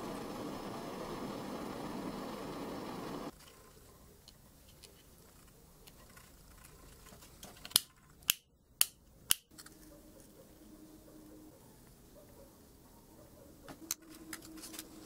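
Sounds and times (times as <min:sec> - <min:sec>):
small clicks and rustling: 0:03.3 - 0:08.2
sharp plastic clicks: 0:07.4 - 0:09.7.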